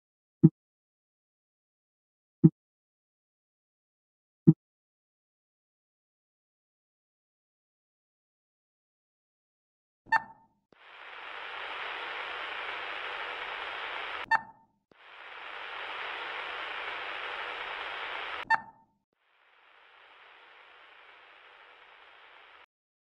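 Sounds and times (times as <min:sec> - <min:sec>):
radio static hiss: 0:10.8 - 0:14.3, 0:15.0 - 0:18.4, 0:19.3 - 0:22.7.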